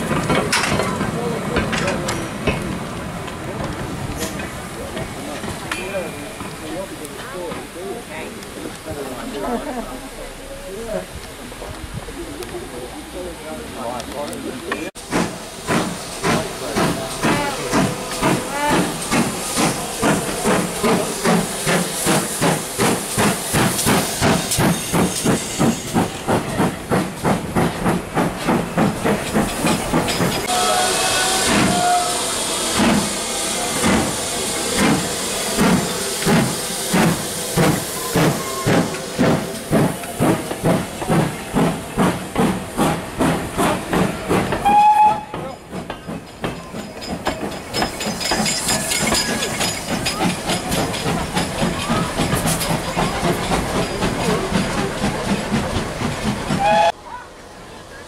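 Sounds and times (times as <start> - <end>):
hissing steam: 0.0 - 57.0
steam locomotive exhaust beats: 14.9 - 57.0
locomotive whistle: 30.4 - 33.9, 44.6 - 45.4, 56.6 - 57.0.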